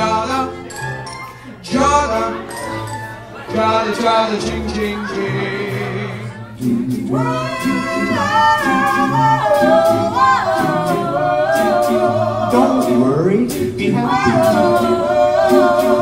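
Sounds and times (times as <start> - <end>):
backing voices singing: 3.5 - 16.0
steady vocal beat: 3.5 - 16.0.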